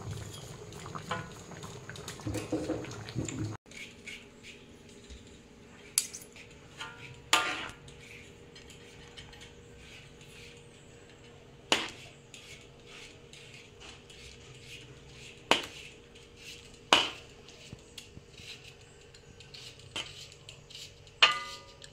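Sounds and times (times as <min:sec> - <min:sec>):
metal utensils clinking on plate: 0:05.9 - 0:07.8.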